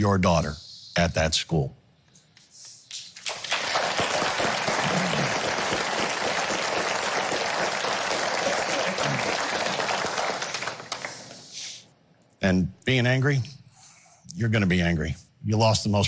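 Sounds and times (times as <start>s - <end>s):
studio audience applauding: 3.2s - 11.4s.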